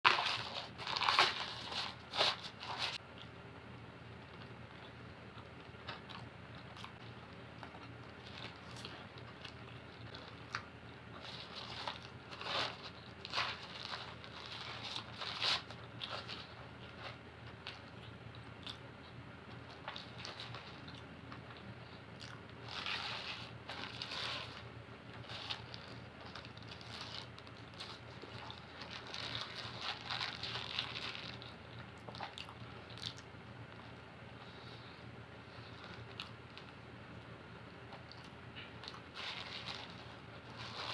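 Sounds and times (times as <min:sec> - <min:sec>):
chewing and biting food: 0:04.4 - 0:33.8.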